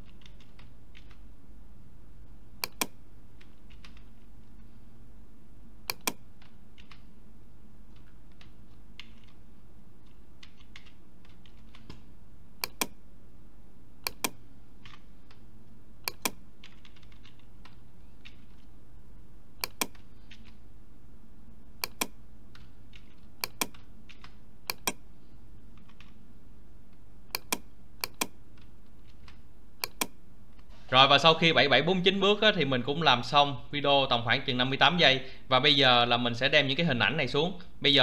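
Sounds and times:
keyboard and mouse clicks: 0.0 - 1.2, 2.6 - 4.3, 5.8 - 7.1, 7.9 - 9.4, 10.0 - 13.0, 14.0 - 15.4, 16.0 - 18.7, 19.6 - 20.6, 21.8 - 25.0, 25.7 - 26.2, 27.3 - 30.7
low steady hum: 0.0 - 38.0.

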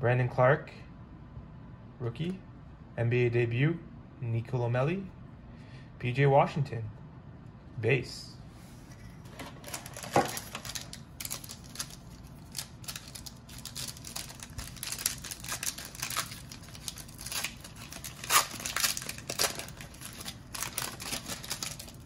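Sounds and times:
foil wrapper crinkling and tearing: 9.6 - 22.0.

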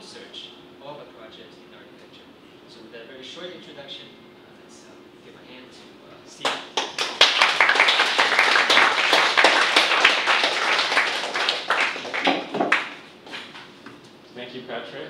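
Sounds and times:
small audience applauding: 6.4 - 13.5.

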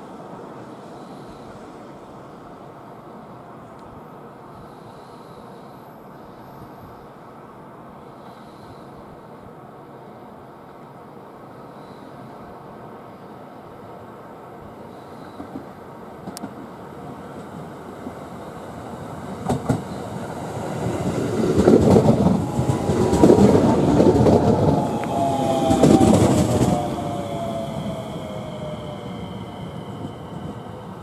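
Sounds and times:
train motor whine: 18.4 - 31.0
train wheels clacking and rumbling: 19.3 - 31.0.

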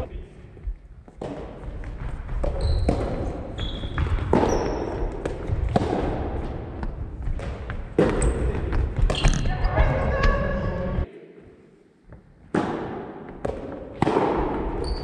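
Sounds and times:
rackets hitting ball: 1.1 - 9.5, 12.4 - 15.0
shoes squeaking on wooden floor: 2.4 - 5.0.

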